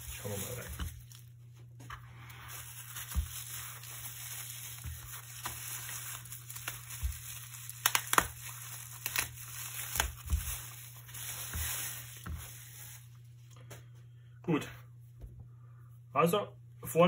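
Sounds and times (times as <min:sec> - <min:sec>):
bubble wrap rustling: 0:00.0 - 0:13.5
sharp crackles: 0:03.0 - 0:10.6.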